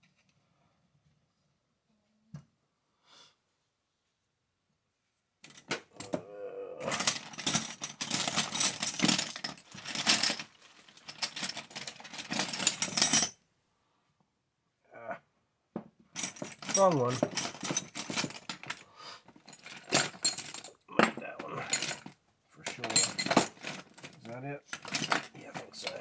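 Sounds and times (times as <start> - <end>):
metal hand tools clattering: 6.9 - 13.3, 16.2 - 18.8, 19.4 - 22.1, 22.7 - 26.0.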